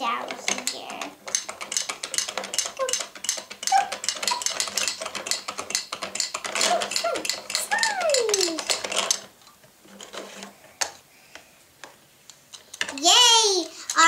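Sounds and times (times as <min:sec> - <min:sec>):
plastic toys clattering down ramps: 0:00.0 - 0:10.5.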